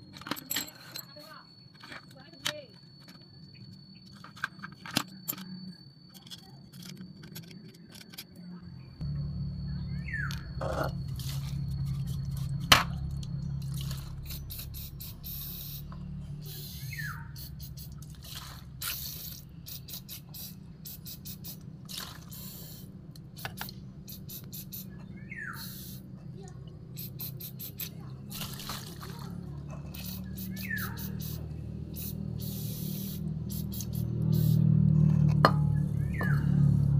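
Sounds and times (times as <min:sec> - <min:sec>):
aerosol spray hisses: 0:14.3 - 0:17.9, 0:18.8 - 0:21.6, 0:22.3 - 0:24.9, 0:25.6 - 0:26.0, 0:27.0 - 0:27.9, 0:30.0 - 0:34.7.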